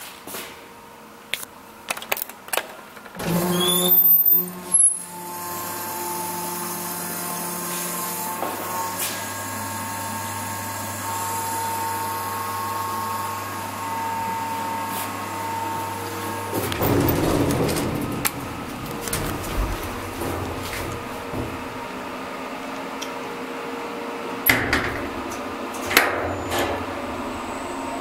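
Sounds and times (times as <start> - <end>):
elevator machinery hum and whine: 0.0 - 28.0
rough machinery rumble: 13.9 - 23.0.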